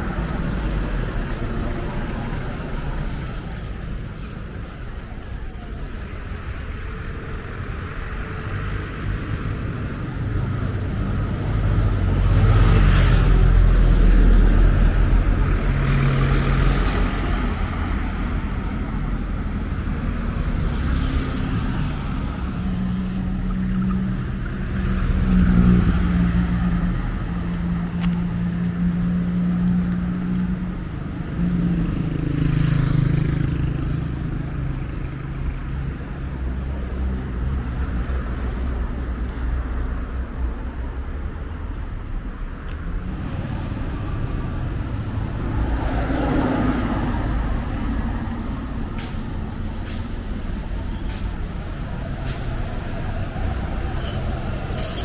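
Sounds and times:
vehicle engine humming: 0.0 - 55.0
vehicles passing: 0.0 - 55.0.

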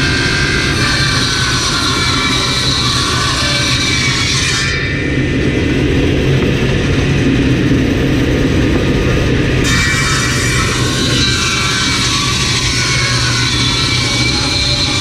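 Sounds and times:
table saw cutting wood: 0.0 - 5.0, 9.6 - 15.0
table saw motor humming: 0.0 - 6.6, 8.5 - 15.0.

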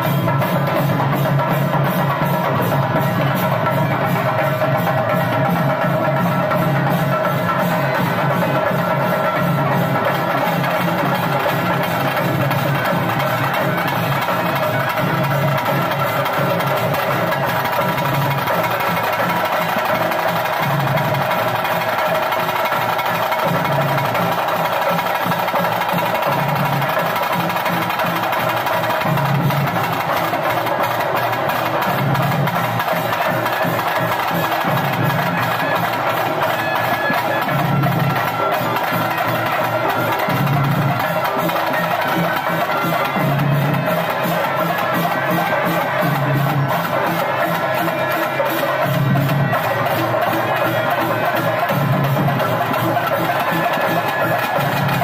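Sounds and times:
loud festival music: 0.0 - 55.0.

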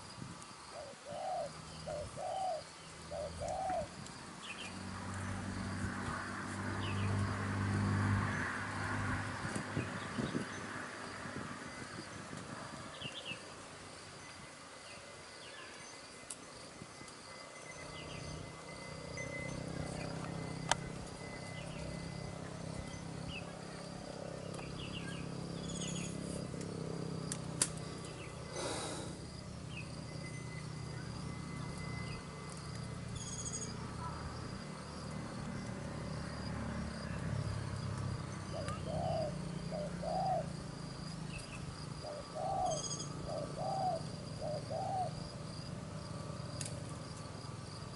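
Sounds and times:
insects chirping: 0.0 - 47.9
small birds chirping: 0.4 - 5.8, 6.8 - 7.3, 9.4 - 13.6, 17.0 - 34.6, 38.0 - 45.2
dove cooing: 0.7 - 4.0, 38.5 - 40.7, 42.0 - 45.2.

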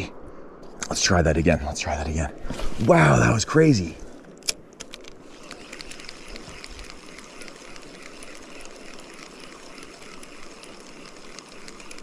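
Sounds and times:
steady low hiss: 0.0 - 12.0
fishing reel ticking: 5.0 - 12.0.

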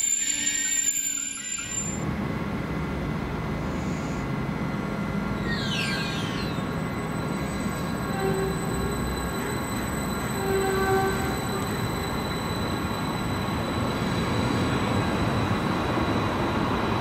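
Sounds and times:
high wheel squeal: 0.0 - 2.0, 5.4 - 16.2
train wheels rumbling on track: 0.0 - 17.0.

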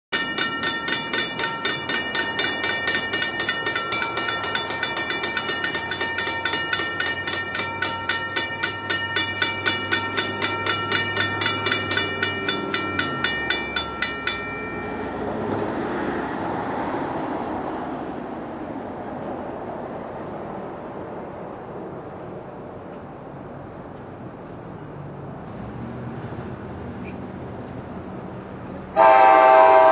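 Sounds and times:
railroad warning bell ringing: 0.1 - 17.7, 28.8 - 29.9.

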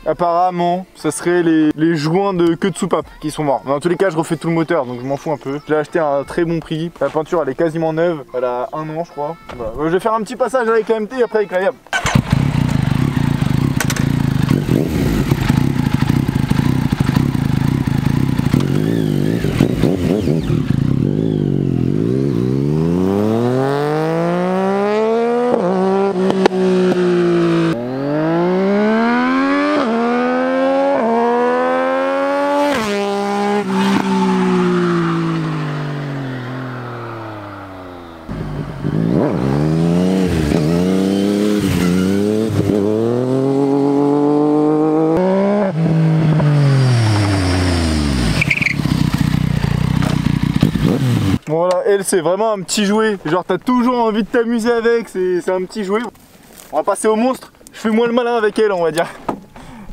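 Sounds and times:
motorcycle engine accelerating: 11.9 - 51.4.

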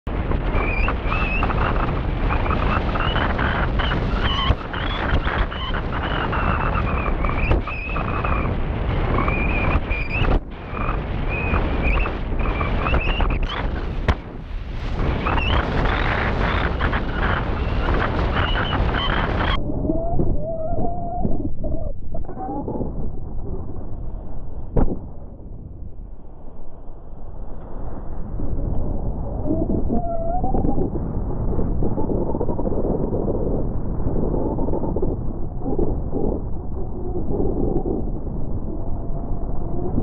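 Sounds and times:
wind rushing over microphone: 0.0 - 40.0
wind buffeting knocks: 0.1 - 21.7.

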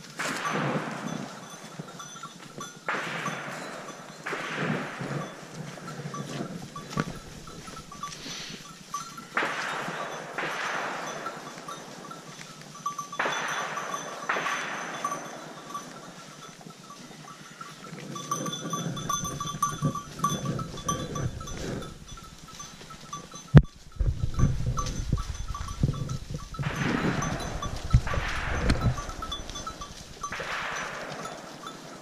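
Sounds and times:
animal bell clinking: 0.0 - 32.0
footsteps in dry leaves: 4.8 - 10.4, 19.3 - 32.0.

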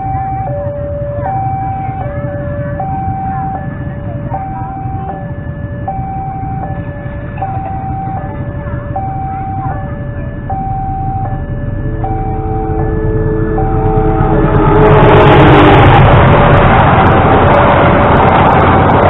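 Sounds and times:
level crossing alarm tones: 0.0 - 17.0
low rumble: 0.0 - 19.0
train horn: 12.6 - 16.6.

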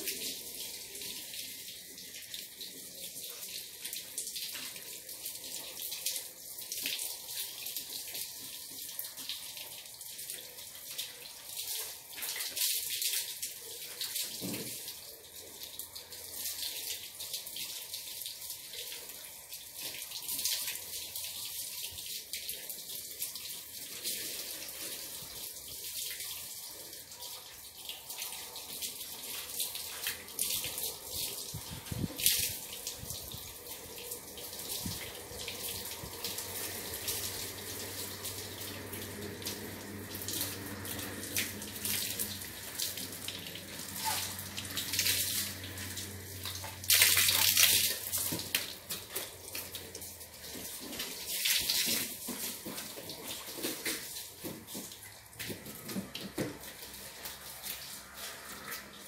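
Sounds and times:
water splashing: 28.0 - 58.9.

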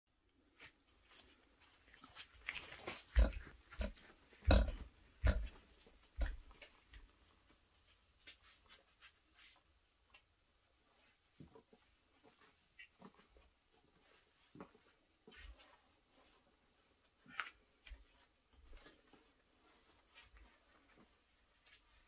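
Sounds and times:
fabric and strap rustling: 0.4 - 4.4, 10.8 - 22.0.

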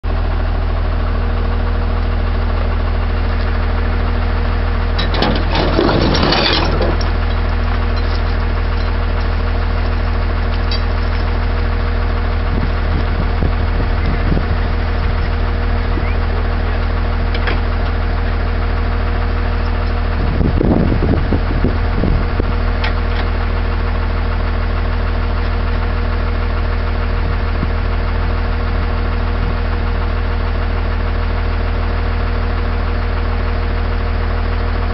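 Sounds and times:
truck engine idling: 0.1 - 34.9.

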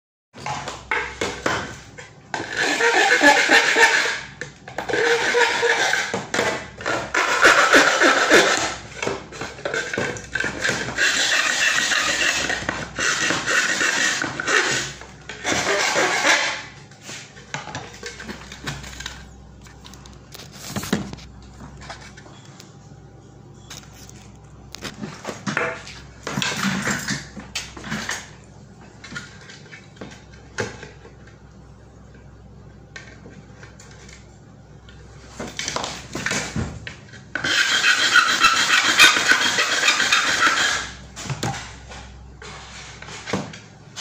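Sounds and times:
hand tool scraping enclosure box: 2.4 - 17.3, 37.4 - 41.7.

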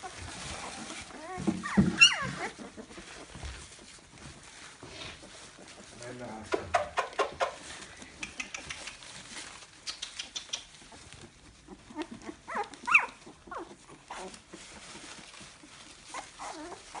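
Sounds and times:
puppies whining and squealing: 0.0 - 4.6, 8.7 - 17.0
rustling paper bedding: 0.0 - 17.0.

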